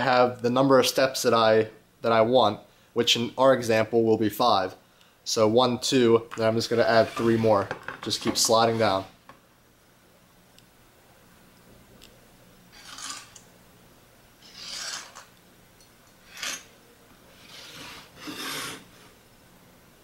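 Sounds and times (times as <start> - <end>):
square sliding on wood: 6.7 - 9.1, 14.4 - 15.2, 17.3 - 19.2
pencil scratching on wood: 17.4 - 18.9.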